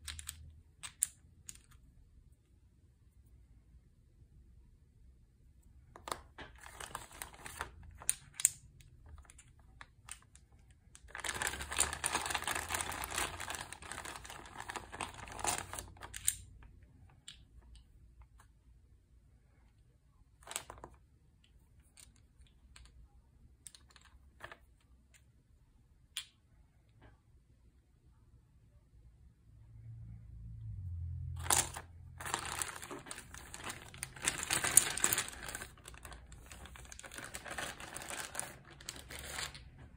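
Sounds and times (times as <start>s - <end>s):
plastic dice clicking: 0.0s - 1.8s
plastic bag crinkling: 6.0s - 10.4s, 11.0s - 16.4s, 31.4s - 39.9s.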